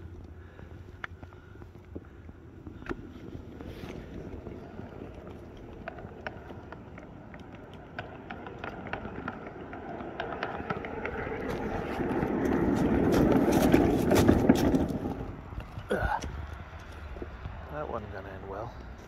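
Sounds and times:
footsteps crunching on gravel and snow: 10.0 - 17.4.

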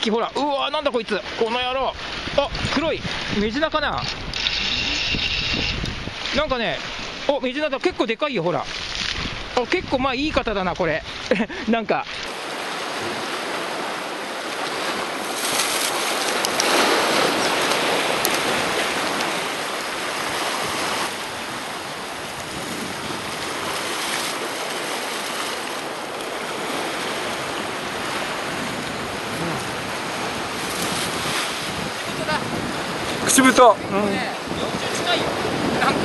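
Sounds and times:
surf washing against rocks: 0.0 - 36.0.

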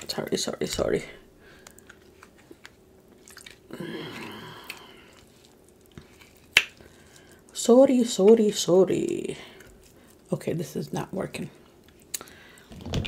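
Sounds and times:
chewing: 1.6 - 7.5
crab shell snapping: 6.4 - 6.9
crab shell clicking: 6.5 - 6.8.

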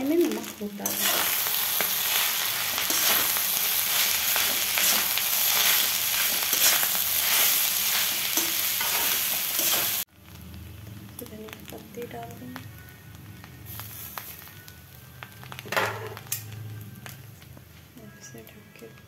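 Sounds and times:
rice sizzling in a metal pan: 0.0 - 18.6
spatula scraping a pan: 0.8 - 10.0.

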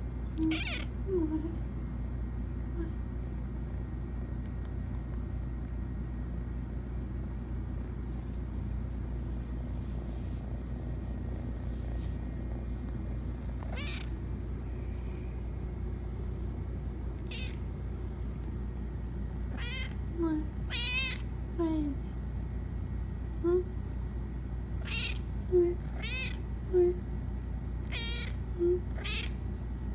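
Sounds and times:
steady low hum: 0.0 - 29.9
cat meowing and chirping: 0.4 - 1.0, 13.6 - 14.2, 17.2 - 17.7, 19.5 - 20.0, 20.7 - 21.3, 24.8 - 25.2, 25.9 - 26.4, 27.8 - 29.4.

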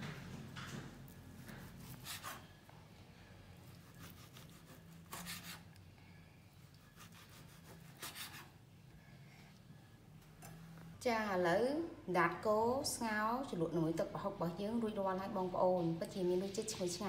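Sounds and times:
knife scraping through meat: 1.4 - 2.5, 3.7 - 5.7, 6.7 - 8.5.

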